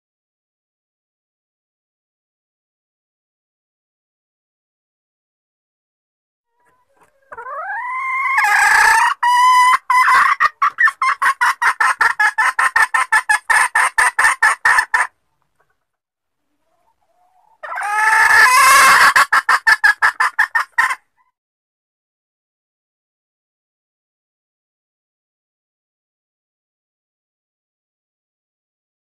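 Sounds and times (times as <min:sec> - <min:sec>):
junglefowl hen clucking call: 0:06.5 - 0:15.7, 0:16.6 - 0:21.4.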